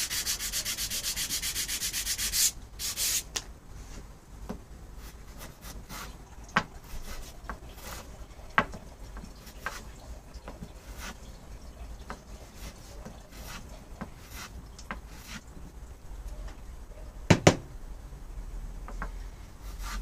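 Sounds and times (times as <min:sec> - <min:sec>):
hand tool rubbing on wood: 0:00.0 - 0:03.3, 0:12.3 - 0:15.4.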